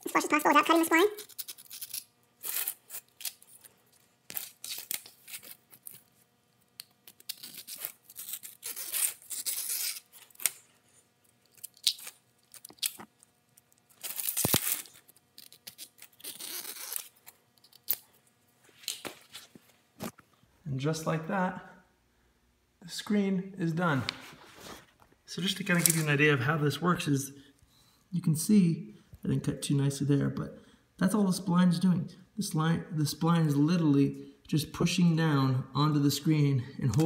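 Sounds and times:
knife scratching screen mesh: 7.0s - 10.6s.

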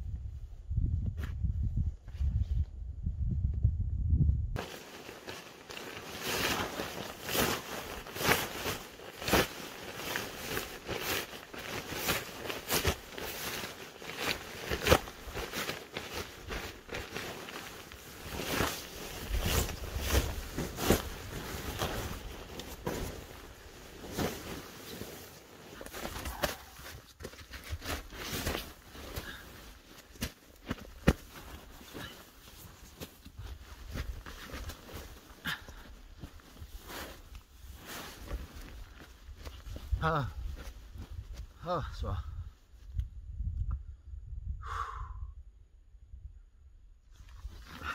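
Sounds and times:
nylon bag rustling and swishing: 4.6s - 41.2s
footsteps crunching in snow: 4.6s - 41.6s.

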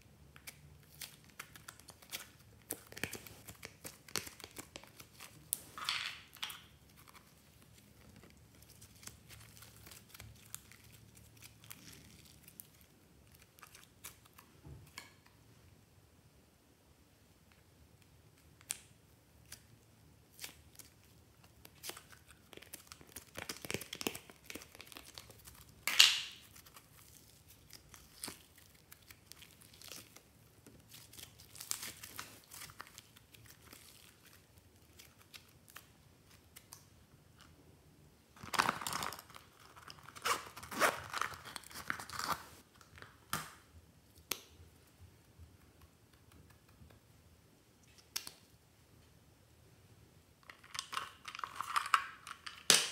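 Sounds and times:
slime tearing and crackling: 20.3s - 30.2s.

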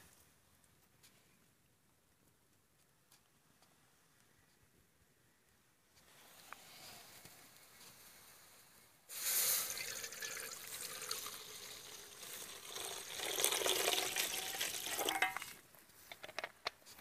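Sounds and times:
water splashing and hissing on hot pan: 9.1s - 15.5s.

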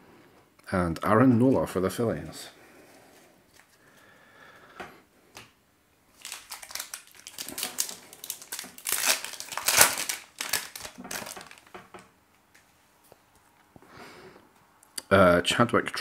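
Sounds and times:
card pack wrapper crinkling: 6.1s - 11.8s.

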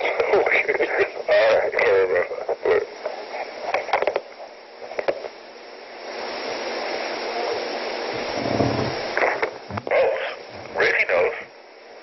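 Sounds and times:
steady rushing hiss: 0.0s - 12.0s
low rumble: 8.1s - 9.1s.

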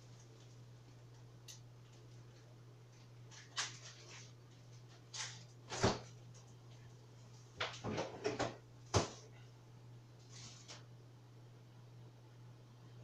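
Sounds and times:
steady low hum: 0.0s - 13.0s
items knocking and clattering: 7.6s - 9.2s.

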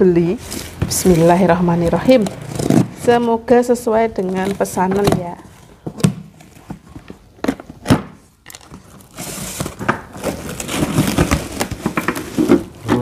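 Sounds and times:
plastic bag crinkling: 8.4s - 12.8s.

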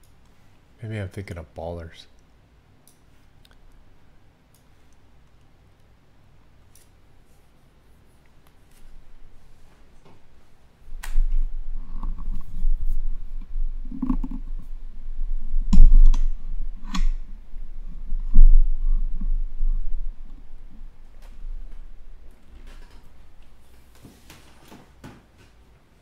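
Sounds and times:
low rumble: 11.0s - 23.6s.

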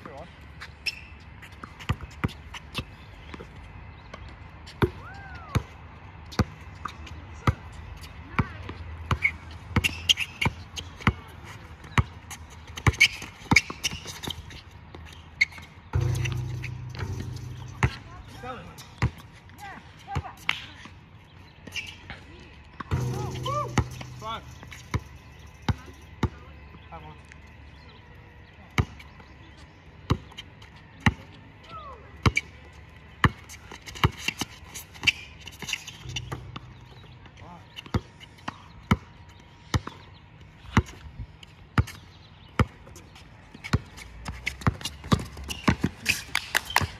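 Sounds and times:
basketball bouncing on pavement: 0.0s - 27.0s, 28.6s - 46.9s
shoe squeaks: 0.6s - 3.0s, 9.1s - 11.6s, 12.2s - 19.4s, 21.5s - 22.2s, 33.5s - 37.1s, 43.6s - 46.9s
basketball bouncing on court: 8.4s - 11.3s, 11.9s - 14.4s, 15.0s - 20.5s, 22.8s - 26.4s, 43.6s - 46.0s.

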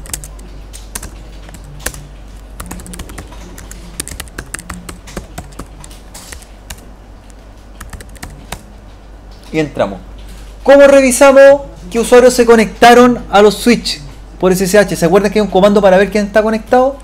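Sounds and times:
low hum: 0.0s - 9.4s.

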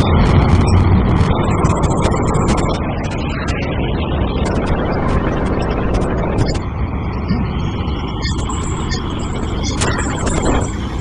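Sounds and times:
rocket engine rumbling: 0.0s - 11.0s.

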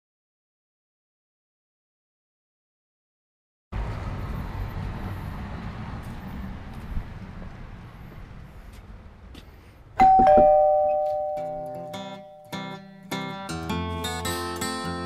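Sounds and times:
low outdoor rumble: 3.8s - 12.4s
two-note doorbell chime: 10.0s - 12.9s.

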